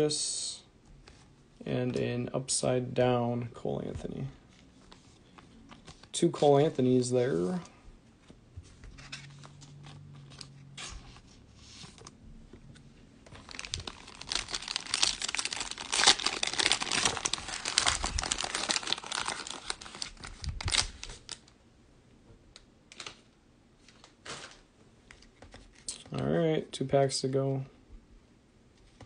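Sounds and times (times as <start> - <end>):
cellophane crinkling: 13.3 - 21.5.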